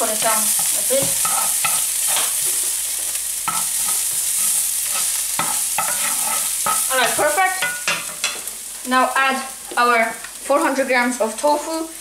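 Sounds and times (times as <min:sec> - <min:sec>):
garlic sizzling in oil: 0:00.0 - 0:12.0
wooden spoon scraping a pan: 0:00.2 - 0:08.6.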